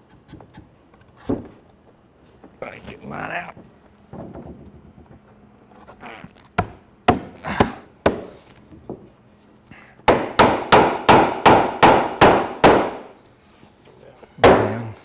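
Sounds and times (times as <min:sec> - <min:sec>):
hammer striking wood: 0:06.6 - 0:08.3, 0:10.0 - 0:13.1, 0:14.4 - 0:14.8.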